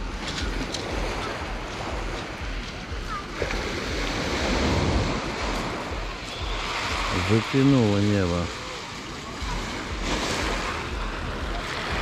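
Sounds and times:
wind on microphone: 0.0 - 7.6
faint voices: 0.0 - 12.0
waves washing over pebbles: 0.0 - 12.0.

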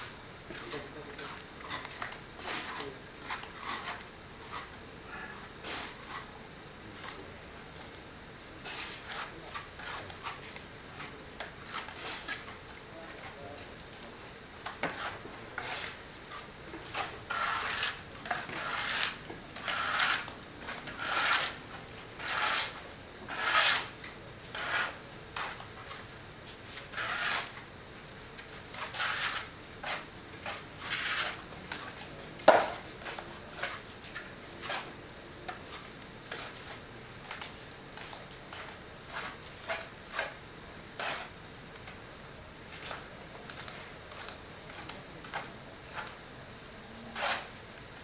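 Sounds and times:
trowel scraping wet cement: 0.6 - 4.7, 8.6 - 12.6, 14.8 - 21.6, 22.2 - 26.0, 26.8 - 27.6, 28.7 - 34.9, 41.0 - 41.3, 47.1 - 47.6.

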